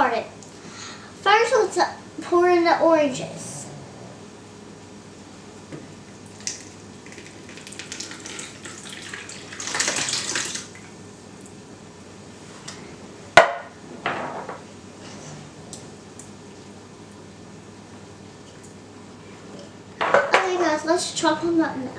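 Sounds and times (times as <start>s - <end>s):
fruit and juice pouring into a bowl: 6.4s - 10.7s.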